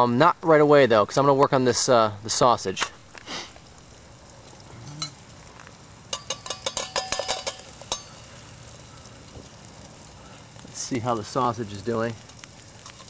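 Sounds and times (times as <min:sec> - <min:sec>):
metal utensil clinking on tin can: 0:06.1 - 0:08.2.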